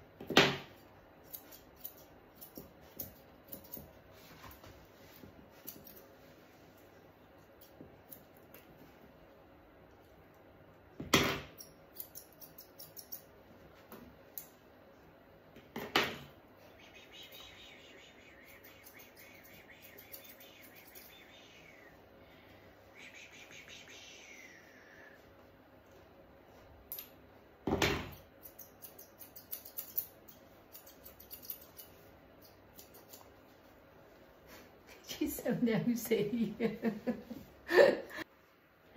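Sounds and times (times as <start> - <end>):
scissors snipping: 1.2 - 3.9, 11.5 - 13.3, 28.4 - 33.3.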